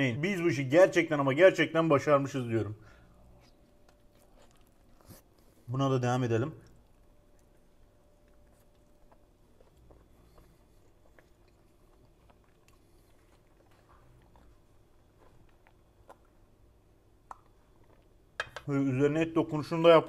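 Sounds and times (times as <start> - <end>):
faint chewing mouth clicks: 3.2 - 5.6, 6.6 - 16.6, 17.2 - 18.2.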